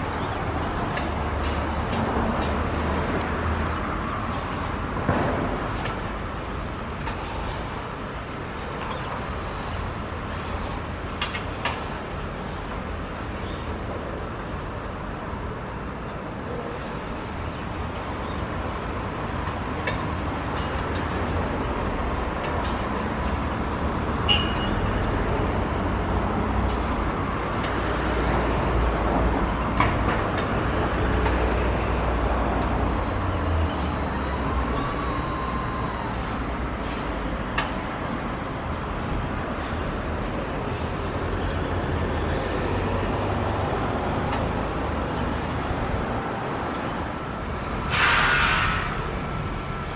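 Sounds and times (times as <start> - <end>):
jet engine whine: 32.7 - 38.6.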